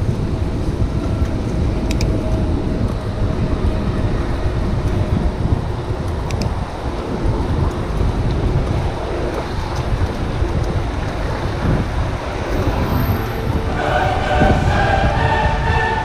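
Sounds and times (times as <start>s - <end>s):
wind buffeting microphone: 0.0s - 16.0s
voices singing: 13.2s - 16.0s.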